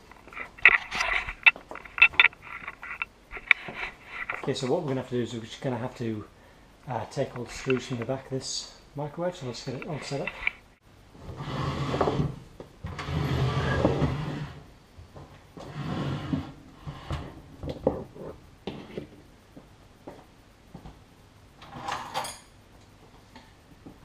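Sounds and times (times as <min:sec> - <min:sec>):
microwave scraping on stone counter: 0:11.2 - 0:14.6, 0:15.6 - 0:17.4.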